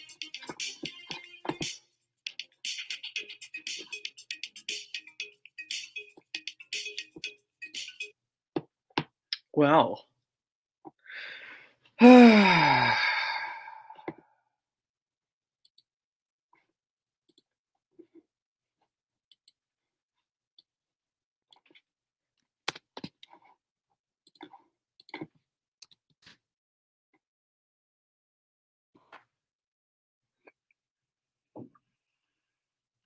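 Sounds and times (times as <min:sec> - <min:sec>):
man groaning: 0:12.0 - 0:13.8.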